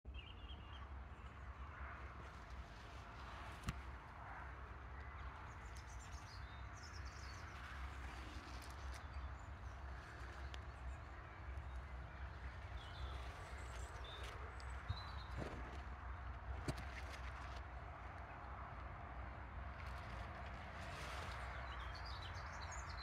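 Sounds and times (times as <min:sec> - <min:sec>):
faint birdsong: 0:00.1 - 0:17.6, 0:18.2 - 0:23.0.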